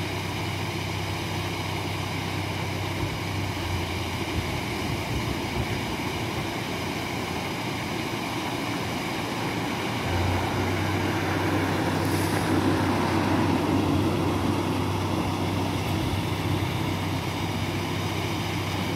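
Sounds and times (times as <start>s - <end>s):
low engine hum: 0.0s - 18.9s
water gushing into lock: 9.3s - 18.2s.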